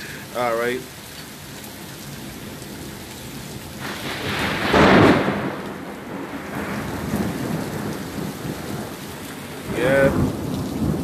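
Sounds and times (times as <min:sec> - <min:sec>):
heavy rain: 0:00.0 - 0:11.0
thunder rumbling: 0:03.7 - 0:11.0.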